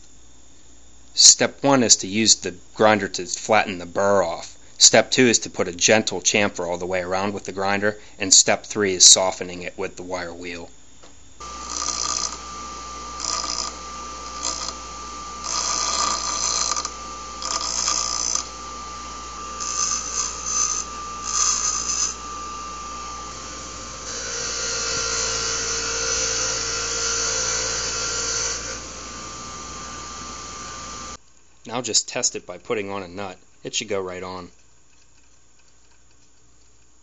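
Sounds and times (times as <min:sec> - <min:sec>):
bench grinder whining: 0:11.4 - 0:31.2
steel rod grinding on wheel: 0:11.4 - 0:31.2
wire wheel brushing: 0:11.4 - 0:31.2.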